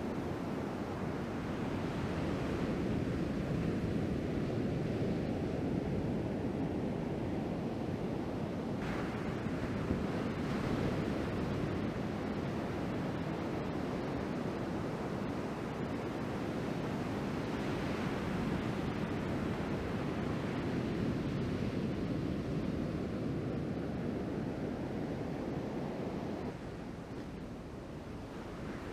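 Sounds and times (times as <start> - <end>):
surf breaking on beach: 8.8 - 15.2.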